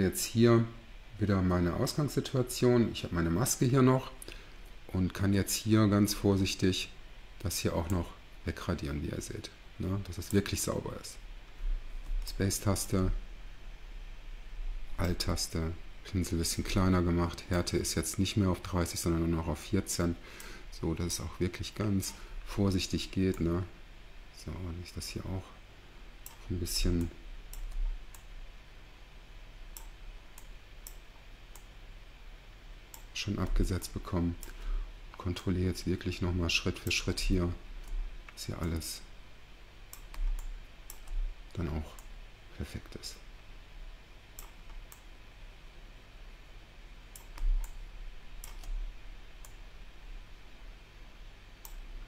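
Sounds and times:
low steady hum: 0.0 - 52.0
computer mouse clicking: 26.2 - 28.3, 29.7 - 31.7, 39.9 - 41.2, 44.4 - 45.1, 47.1 - 47.8, 48.4 - 48.8, 51.6 - 51.8.

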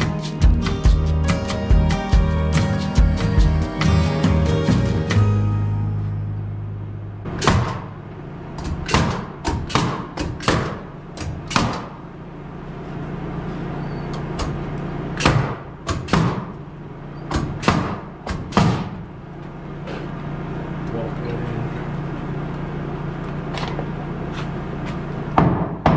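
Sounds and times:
steady low hum: 0.0 - 25.9
hammer striking nails into wood: 7.4 - 7.9, 8.6 - 12.0, 15.2 - 16.6, 17.4 - 19.0.

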